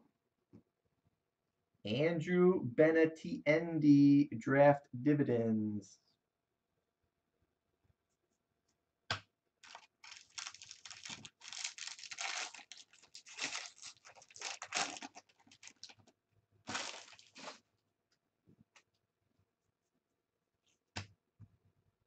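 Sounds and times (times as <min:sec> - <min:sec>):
foil wrapper tearing and crinkling: 0:09.6 - 0:16.0, 0:16.7 - 0:17.6.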